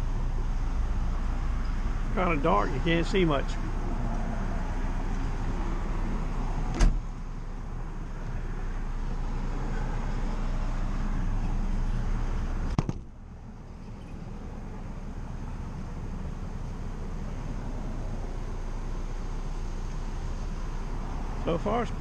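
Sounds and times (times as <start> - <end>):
glass hatch shutting: 6.7 - 7.0
sharp knock: 12.7 - 13.1.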